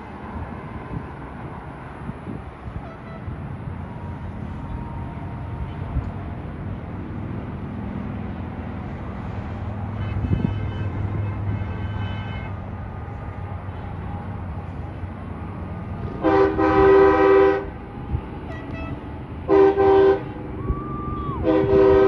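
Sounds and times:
distant road traffic rumble: 0.0s - 22.0s
vehicle horn: 2.8s - 3.3s, 9.9s - 12.6s, 16.2s - 17.7s, 18.5s - 20.3s, 21.4s - 22.0s.

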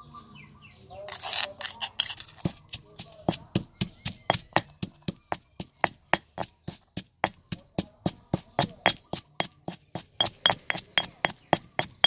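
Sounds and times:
pestle pounding in stone mortar: 1.7s - 12.0s.

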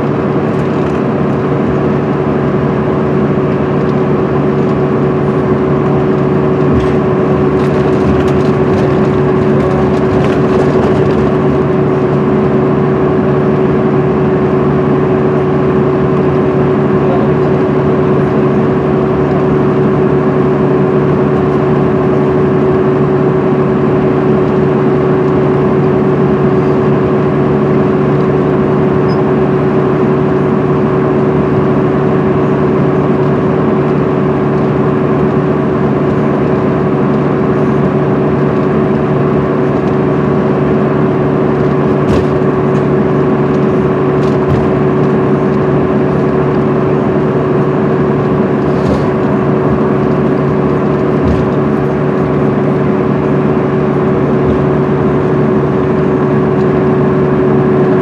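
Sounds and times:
coach cabin drone: 0.0s - 58.0s
road noise: 0.0s - 58.0s
knocks and rattles: 6.6s - 11.8s, 51.1s - 52.0s.

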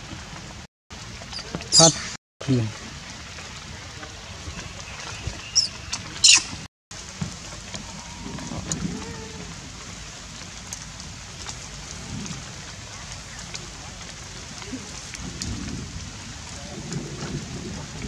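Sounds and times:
light rain patter: 0.0s - 18.0s
baby monkey squealing: 5.6s - 6.6s.

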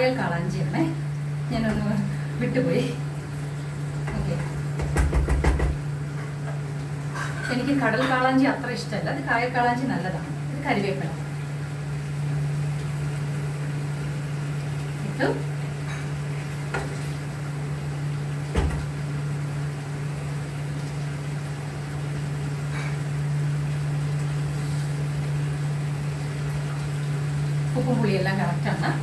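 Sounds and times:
steady low hum: 0.0s - 29.0s
utensils clinking against pot: 7.1s - 8.4s.

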